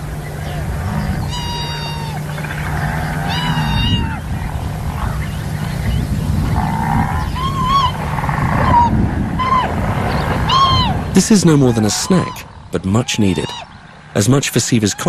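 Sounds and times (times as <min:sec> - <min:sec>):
steady low hum: 0:00.0 - 0:15.0
bleat-like animal calls: 0:00.5 - 0:04.2.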